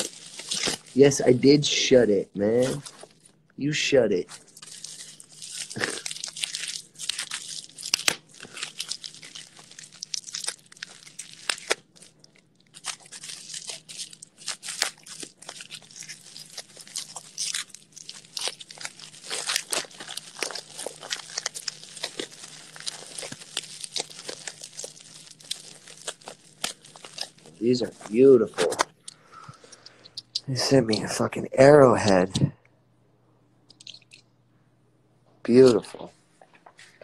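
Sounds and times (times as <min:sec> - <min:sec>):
paper crinkling and tearing: 0:00.0 - 0:03.4, 0:04.1 - 0:31.2.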